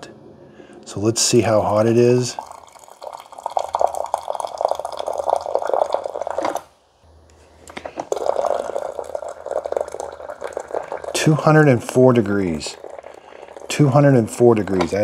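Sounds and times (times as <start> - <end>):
water splashing into a mug: 2.3 - 6.7, 8.0 - 15.0.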